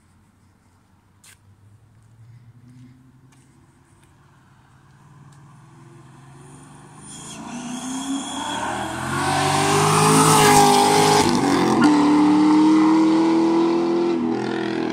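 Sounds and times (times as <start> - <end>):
car engine accelerating past: 4.2 - 14.9.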